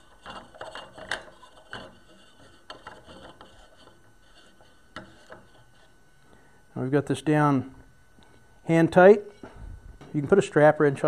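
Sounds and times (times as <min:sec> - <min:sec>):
metal parts rubbing and scraping: 0:00.0 - 0:05.9.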